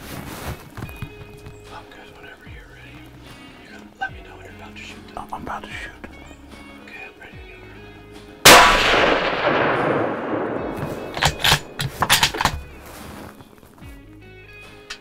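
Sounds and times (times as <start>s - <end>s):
rifle shot with echo: 8.4s - 12.5s.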